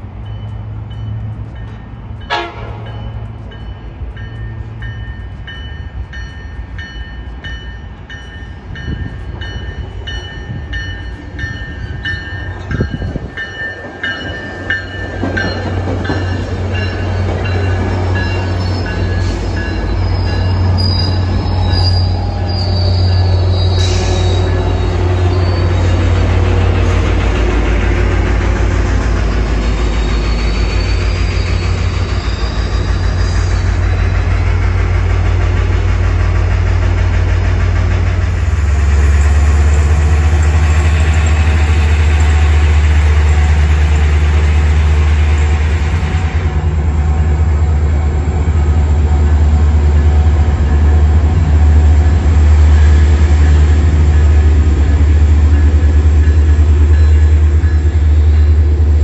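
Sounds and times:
train bell dinging: 0:00.0 - 0:27.1, 0:47.5 - 0:59.0
diesel locomotive engine: 0:00.0 - 0:59.0
rail noise: 0:00.0 - 0:59.0
wheels squealing: 0:16.2 - 0:26.2.

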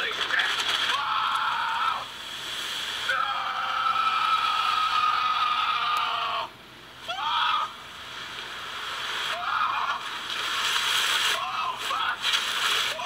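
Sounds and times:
steady high whine: 0:00.0 - 0:13.0
man wailing and shouting: 0:11.4 - 0:12.3.

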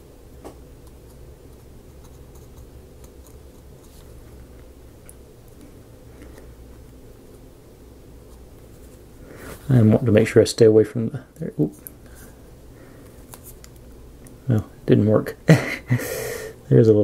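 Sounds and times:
low room hum: 0:00.0 - 0:17.0
paintbrush scratching: 0:01.1 - 0:04.2.

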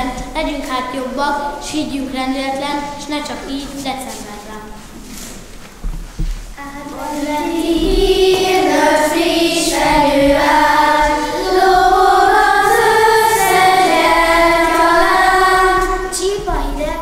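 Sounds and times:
children singing together: 0:06.6 - 0:16.8.

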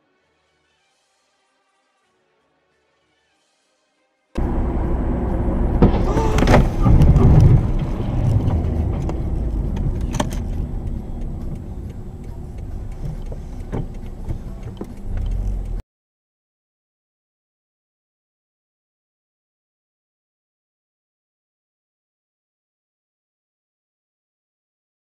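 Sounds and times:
car engine and road rumble: 0:04.4 - 0:15.8.

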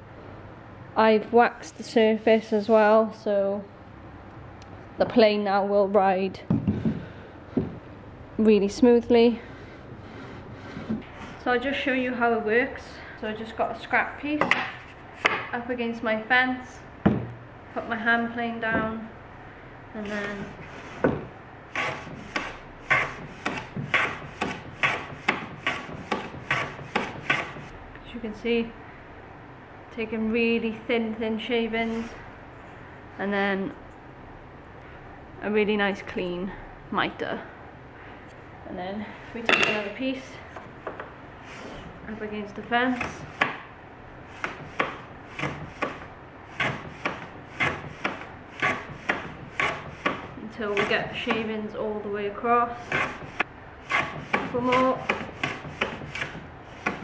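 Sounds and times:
hand plane shaving wood: 0:20.1 - 0:21.0, 0:21.7 - 0:27.7, 0:44.3 - 0:51.5, 0:52.8 - 0:57.0.

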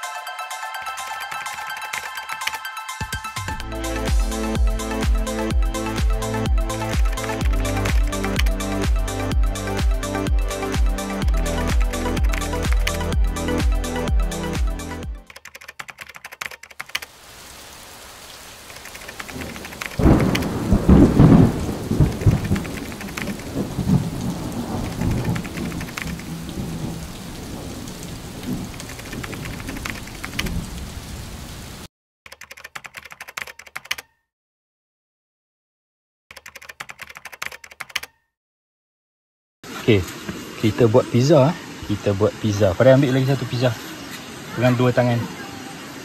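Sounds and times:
rapid key clicks: 0:01.3 - 0:02.6, 0:06.8 - 0:08.6, 0:11.2 - 0:13.0, 0:15.2 - 0:17.1, 0:18.7 - 0:20.5, 0:22.0 - 0:23.6, 0:24.8 - 0:26.3, 0:28.7 - 0:30.5, 0:32.3 - 0:34.2, 0:36.3 - 0:38.2
rain falling: 0:03.6 - 0:14.9, 0:16.8 - 0:31.9, 0:39.6 - 0:46.0
thunder rolling: 0:19.3 - 0:31.0.

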